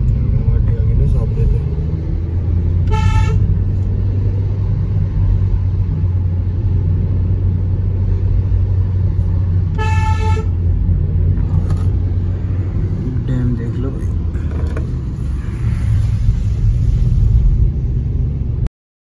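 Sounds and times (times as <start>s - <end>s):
car engine and road noise: 0.0s - 18.7s
car horn toot: 2.8s - 3.6s, 9.7s - 10.6s.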